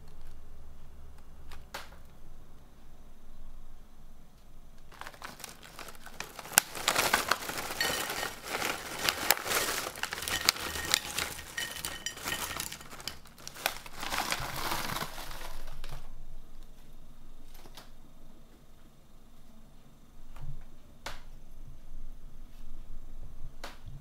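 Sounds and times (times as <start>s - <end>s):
plastic snack packet crinkling: 4.9s - 16.1s.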